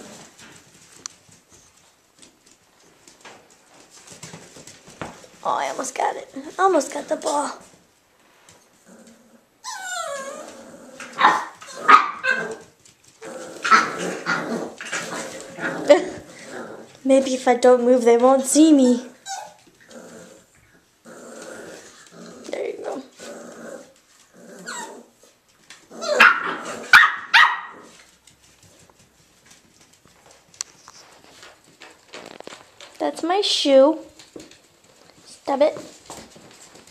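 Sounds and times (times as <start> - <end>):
puppy whining: 9.0 - 12.8, 19.0 - 20.6, 21.6 - 28.0
puppies barking: 11.1 - 12.7, 26.0 - 28.0
puppies yipping and barking: 19.2 - 19.7.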